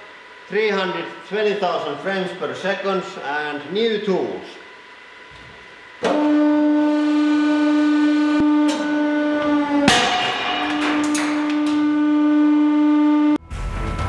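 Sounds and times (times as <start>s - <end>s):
hydraulic pump humming: 0.0s - 13.4s
steel ball shattering: 9.8s - 11.8s.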